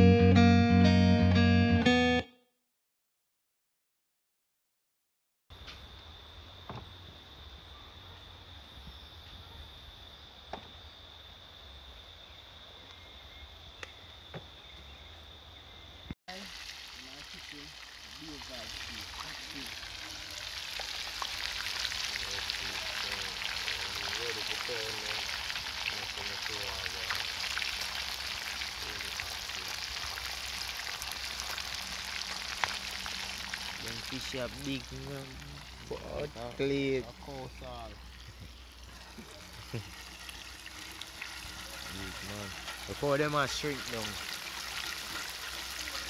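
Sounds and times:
insects droning: 0:05.5 - 0:46.0
fish sizzling in hot oil: 0:16.3 - 0:46.0.

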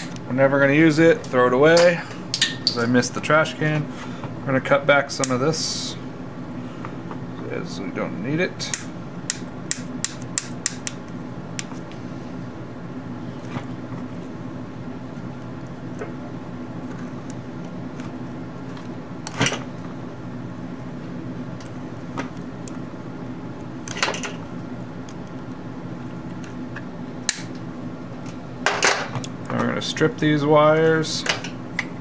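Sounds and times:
steady low hum: 0:00.0 - 0:32.0
wire cutters snipping: 0:08.6 - 0:11.0, 0:27.2 - 0:27.6.

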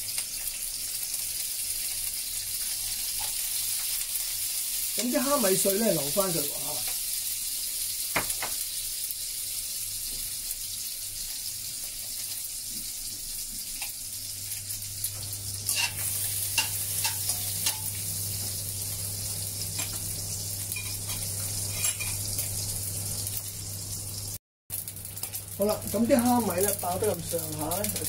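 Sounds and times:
shrimp sizzling in hot oil: 0:00.0 - 0:28.0
spatula scraping and tapping pan: 0:15.7 - 0:17.9, 0:20.8 - 0:22.3.

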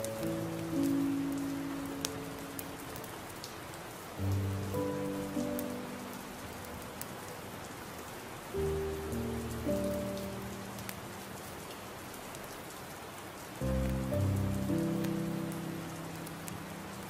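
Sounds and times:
soft music chords: 0:00.0 - 0:03.1, 0:04.2 - 0:07.3, 0:08.6 - 0:11.2, 0:13.6 - 0:17.0
raindrop clicks: 0:00.0 - 0:07.4, 0:08.6 - 0:17.0
steady rain: 0:00.0 - 0:17.0.

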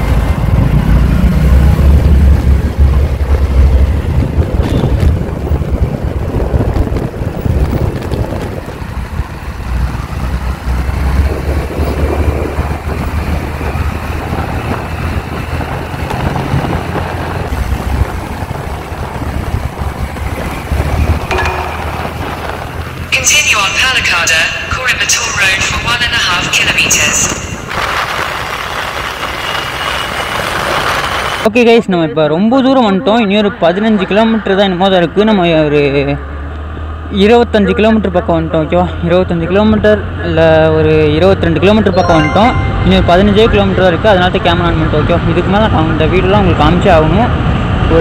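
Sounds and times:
scooter and road noise: 0:00.0 - 0:31.7, 0:32.8 - 0:41.9, 0:42.5 - 0:48.0
wind buffeting microphone: 0:00.2 - 0:23.2.

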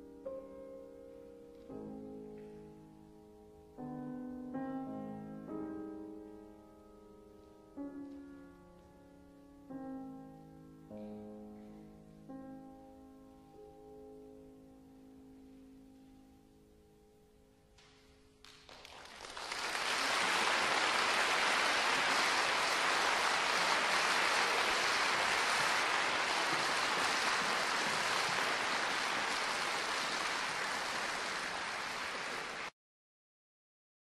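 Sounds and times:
piano notes: 0:00.0 - 0:18.4, 0:20.1 - 0:32.7
audience applause: 0:18.5 - 0:32.8.

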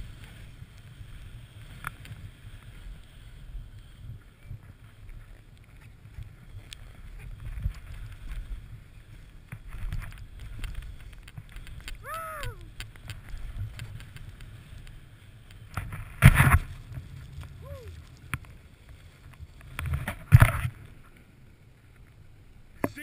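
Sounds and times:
person crying out: 0:12.0 - 0:12.7, 0:17.6 - 0:17.9.

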